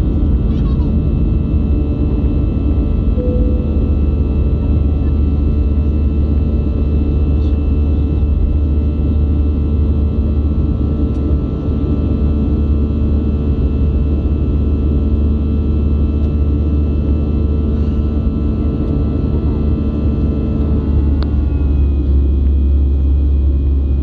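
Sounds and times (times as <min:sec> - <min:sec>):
jet engine hum in cabin: 0:00.0 - 0:24.0
faint steady whining tones: 0:01.7 - 0:10.0.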